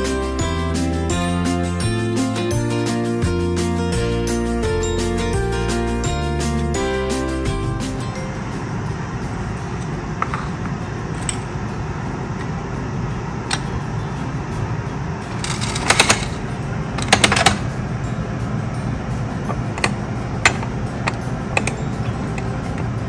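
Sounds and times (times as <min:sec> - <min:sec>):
candy dispenser crank clicking: 0:15.3 - 0:17.7.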